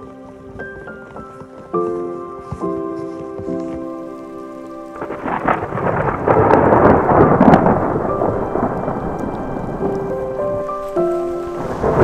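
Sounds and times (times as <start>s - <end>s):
rain: 0.0s - 12.0s
thunder rolling: 4.8s - 12.0s.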